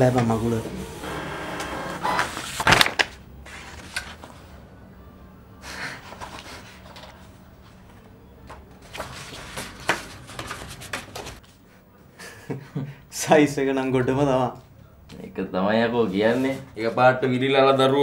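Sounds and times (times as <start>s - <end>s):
paper rustling: 2.0s - 4.5s, 6.0s - 11.6s.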